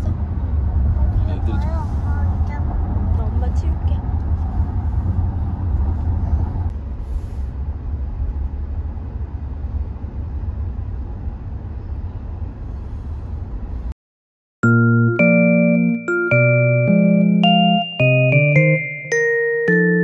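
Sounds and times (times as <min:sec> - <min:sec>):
car cabin road rumble: 0:00.0 - 0:13.9
keyboard melody: 0:14.6 - 0:20.0.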